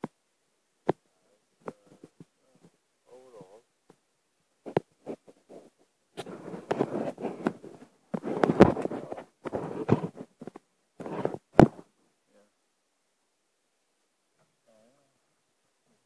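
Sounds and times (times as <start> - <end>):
rubbing and scraping handling noise: 1.6 - 2.8, 4.6 - 12.0.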